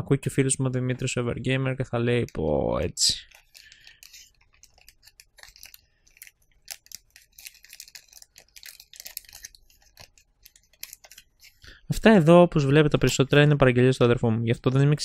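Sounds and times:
plastic bag crinkling: 3.2 - 13.5.

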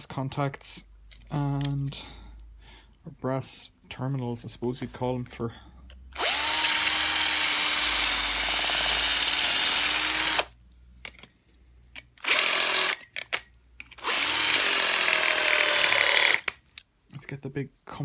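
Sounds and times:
cordless drill boring into metal: 6.2 - 10.5, 12.2 - 13.0, 14.0 - 16.5.

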